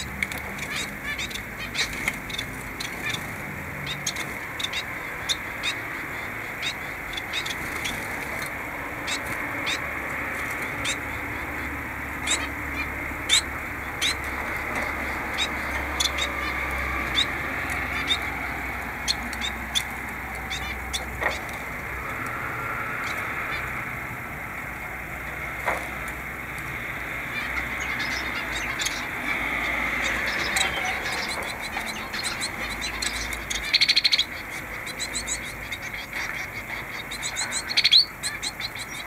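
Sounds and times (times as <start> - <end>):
finches chirping: 0.0 - 39.0.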